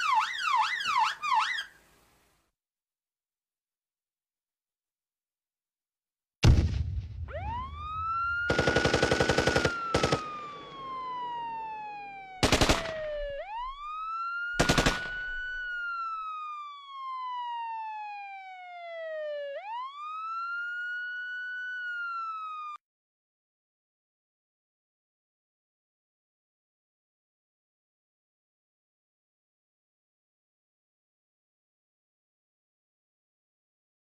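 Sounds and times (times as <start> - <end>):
siren wailing: 0.0 - 1.8, 7.2 - 22.8
automatic gunfire bursts: 8.5 - 10.5, 12.4 - 13.0, 14.6 - 15.4.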